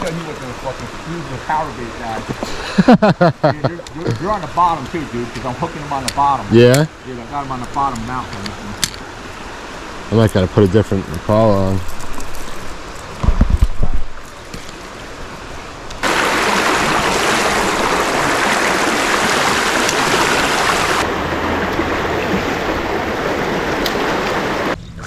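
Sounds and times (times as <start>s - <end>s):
quiet flowing water: 0.0s - 24.8s
river water rushing over rocks: 13.9s - 24.8s.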